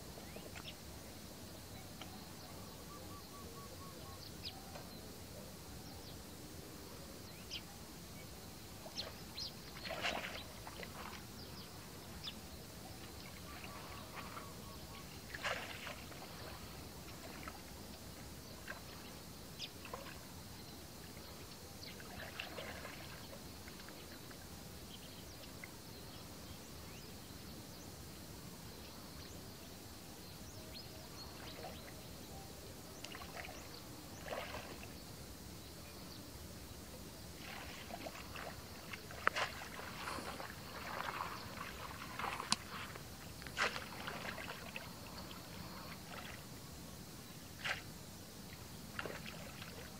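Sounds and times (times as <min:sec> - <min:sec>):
steady background hiss: 0:00.0 - 0:49.9
muddy water splashing: 0:08.8 - 0:24.4, 0:32.9 - 0:35.1, 0:37.3 - 0:46.8, 0:48.5 - 0:49.9.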